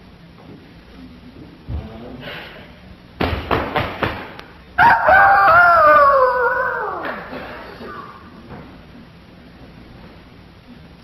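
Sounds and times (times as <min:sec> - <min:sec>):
rooster crowing: 0:04.8 - 0:07.3.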